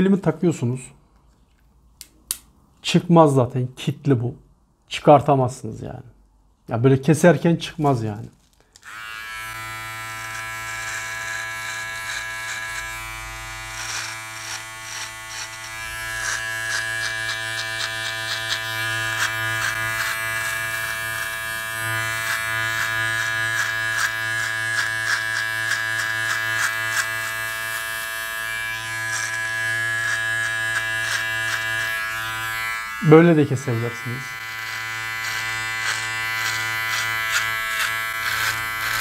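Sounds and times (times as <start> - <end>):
blades snipping hair: 8.8 - 39.0
electric trimmer buzzing: 8.8 - 39.0.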